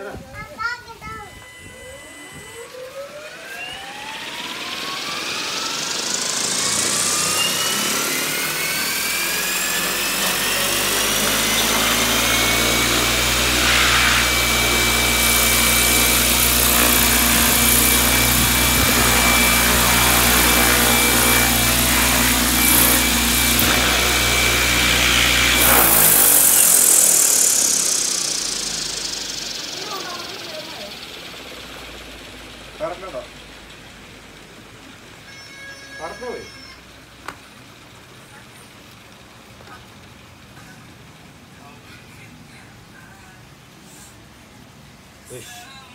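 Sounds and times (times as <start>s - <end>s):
electric motor and gear whine: 0.0s - 37.4s
rotor blades thrumming: 1.4s - 34.8s.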